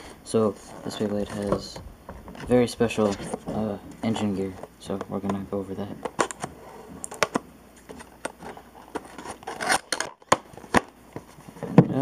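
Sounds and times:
scissors cutting cardboard: 8.9s - 10.9s.

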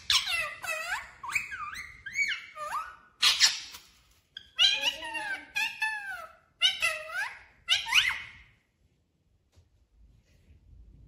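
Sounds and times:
parakeet squeaky whistles: 0.0s - 3.8s.

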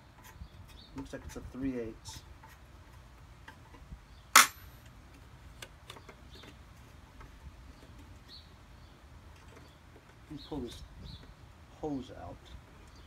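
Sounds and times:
loud sharp clack: 4.4s - 4.8s.

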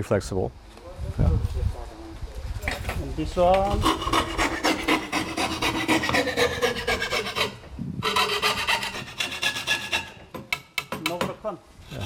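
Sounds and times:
hand saw cutting wood: 3.6s - 12.0s.

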